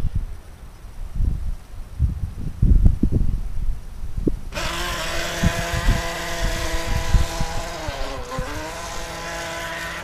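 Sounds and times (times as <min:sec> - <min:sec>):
toy speedboat motor whining: 0:04.5 - 0:10.0.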